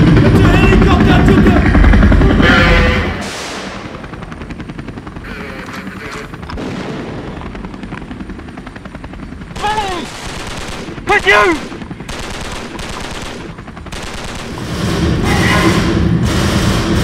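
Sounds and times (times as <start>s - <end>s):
helicopter rotor chopping: 0.0s - 17.0s
man shouting: 9.6s - 10.1s, 11.1s - 11.6s.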